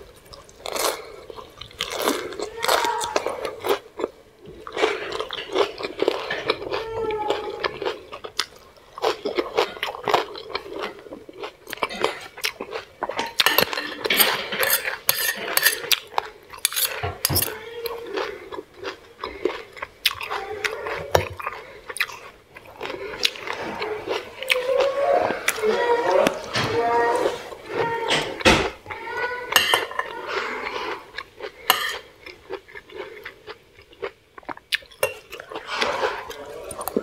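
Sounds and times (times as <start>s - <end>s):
chewing: 0.1s - 28.4s, 29.0s - 37.0s
fork and spoon scraping a plate: 13.2s - 16.0s, 16.6s - 17.6s, 29.5s - 31.0s, 31.7s - 32.0s.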